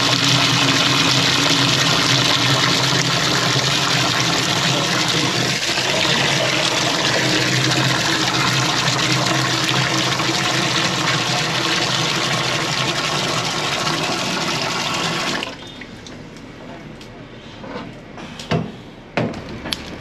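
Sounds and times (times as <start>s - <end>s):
water running from pipe: 0.0s - 15.6s.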